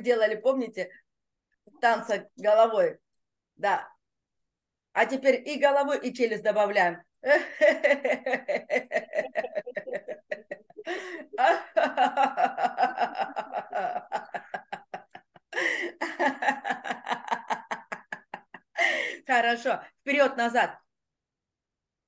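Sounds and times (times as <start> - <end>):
woman laughing: 7.2 - 19.2.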